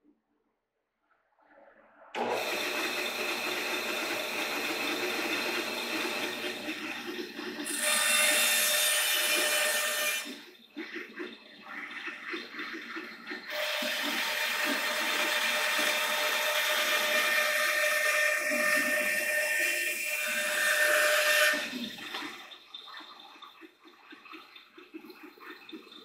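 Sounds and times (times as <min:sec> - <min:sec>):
bandsaw cutting wood: 0:02.2 - 0:10.4, 0:13.5 - 0:22.0.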